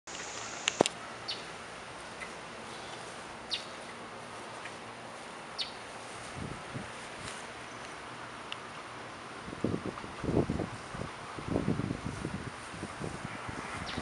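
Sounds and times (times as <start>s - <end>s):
steady outdoor hiss: 0.1s - 14.0s
small bird chirping: 1.3s - 1.5s, 2.1s - 3.9s, 5.6s - 5.8s, 13.8s - 14.0s.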